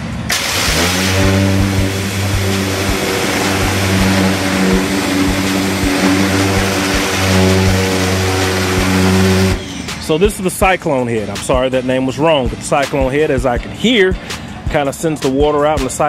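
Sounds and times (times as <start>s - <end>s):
pressure washer motor hum: 0.0s - 10.1s
water jet hissing on panel: 0.3s - 9.9s.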